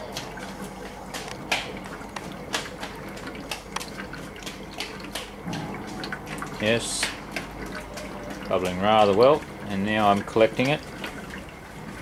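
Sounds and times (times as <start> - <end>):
low steady hum: 4.0 - 12.0.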